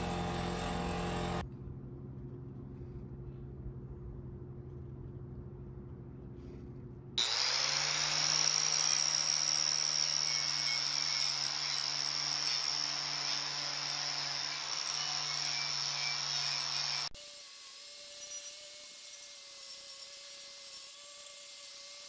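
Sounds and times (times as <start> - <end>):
buffing wheel motor humming: 0.0 - 1.4
angle grinder scouring rust: 7.2 - 22.0.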